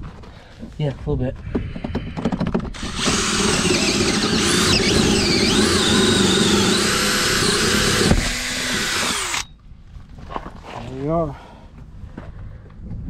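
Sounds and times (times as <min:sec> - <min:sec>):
drill cutting sheet metal: 0:02.8 - 0:09.5.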